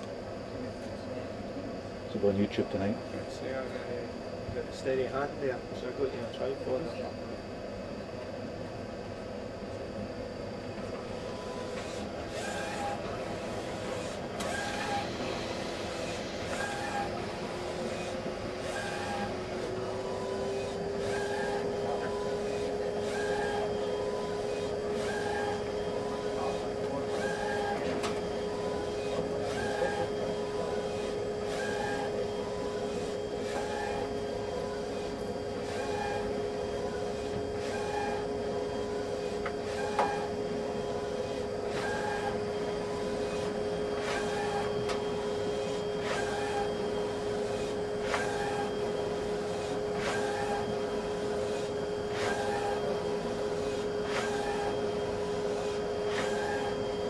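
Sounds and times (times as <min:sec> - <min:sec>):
plotter motor hum: 0:00.0 - 0:57.0
short mechanical plotter sound: 0:11.5 - 0:34.1, 0:41.1 - 0:45.0, 0:46.0 - 0:46.8, 0:47.5 - 0:48.7, 0:49.5 - 0:50.7.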